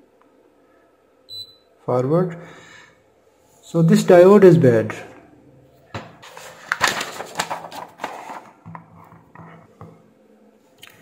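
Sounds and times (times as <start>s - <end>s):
paper crackling and rustling: 6.2s - 9.2s.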